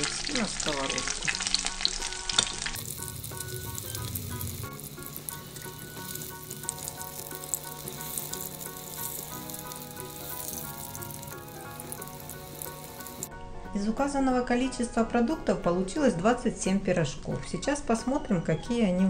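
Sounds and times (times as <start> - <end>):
oil sizzling and crackling: 0.0 - 13.3.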